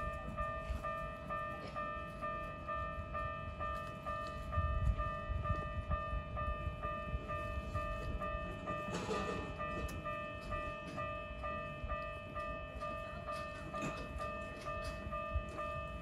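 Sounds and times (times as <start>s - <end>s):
level-crossing warning bell: 0.0s - 16.0s.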